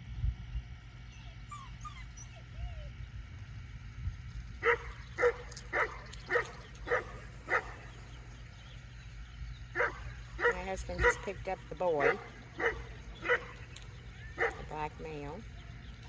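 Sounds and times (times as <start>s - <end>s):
dog barking: 4.6s - 7.8s, 9.8s - 11.4s, 12.0s - 13.6s, 14.4s - 14.8s.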